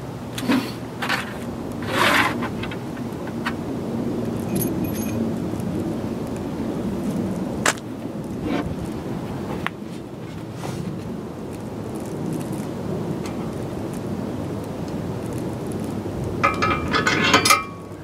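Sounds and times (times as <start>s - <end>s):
metal hardware clinking: 4.4s - 5.2s, 16.4s - 18.0s.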